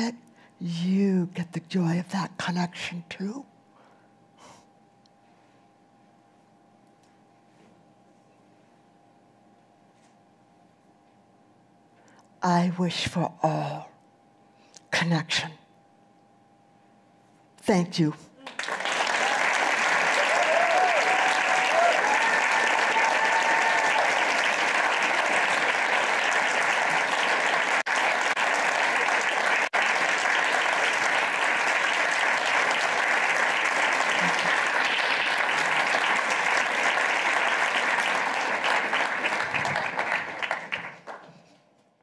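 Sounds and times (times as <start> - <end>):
audience applauding: 18.4 - 41.4
audience cheering: 18.5 - 40.8.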